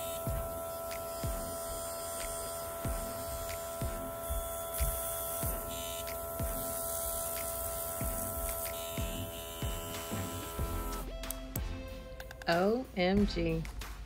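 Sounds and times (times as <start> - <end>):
airbrush compressor humming: 0.0 - 11.1.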